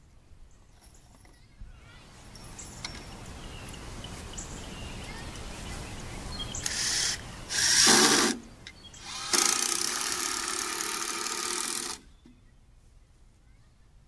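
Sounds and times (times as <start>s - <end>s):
power drill driving screws: 6.6s - 8.4s, 9.0s - 12.0s.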